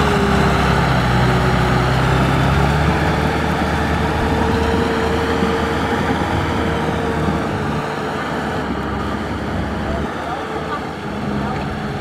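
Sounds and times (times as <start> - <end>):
tractor diesel engine under load: 0.0 - 12.0.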